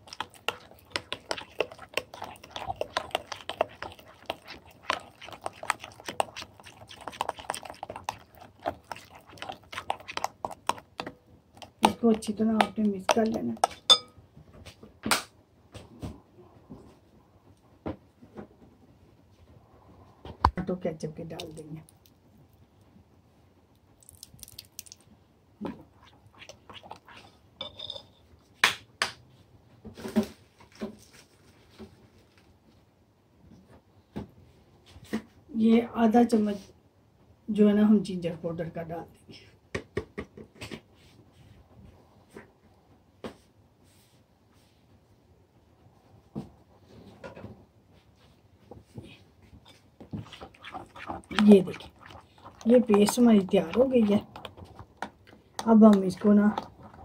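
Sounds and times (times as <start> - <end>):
wet paste squelching: 0.0 - 13.9, 24.0 - 25.0, 25.6 - 27.4, 49.7 - 57.0
spoon clinking against glass: 13.6 - 14.1, 27.6 - 28.1.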